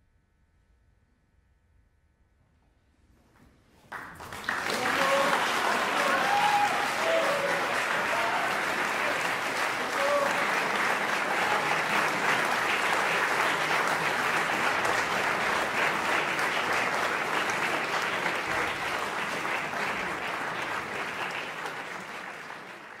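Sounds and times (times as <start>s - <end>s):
audience applauding: 3.9s - 23.0s.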